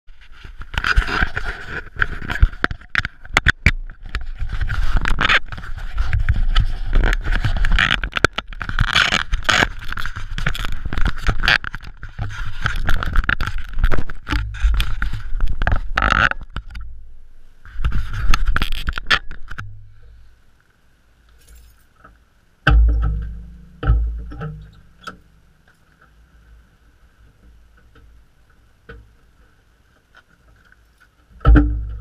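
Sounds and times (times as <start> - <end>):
sharp knocks and rattles: 22.6 - 25.3, 31.4 - 32.0.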